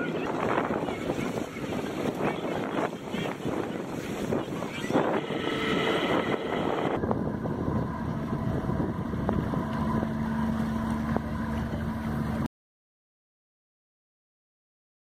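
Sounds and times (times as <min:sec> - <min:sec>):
wind on microphone: 0:00.0 - 0:12.4
ferry engine running: 0:00.0 - 0:12.5.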